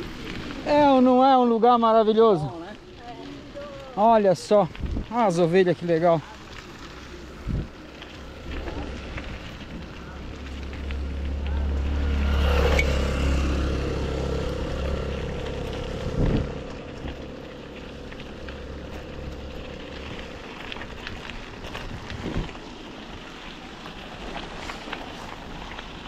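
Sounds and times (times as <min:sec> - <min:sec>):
low bumps: 0:00.0 - 0:26.0
wind rushing over microphone: 0:04.7 - 0:05.1, 0:07.4 - 0:09.9, 0:12.3 - 0:17.2.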